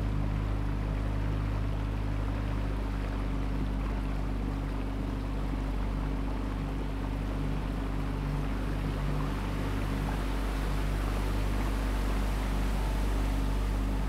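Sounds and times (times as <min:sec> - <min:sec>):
motorboat engine humming: 0:00.0 - 0:14.0
water rushing along boat: 0:00.0 - 0:14.0
wind: 0:00.0 - 0:14.0.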